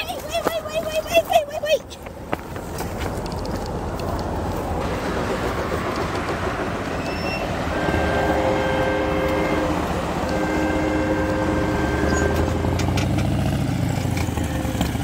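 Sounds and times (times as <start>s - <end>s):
train horn blasts: 7.1s - 13.0s, 14.3s - 15.0s.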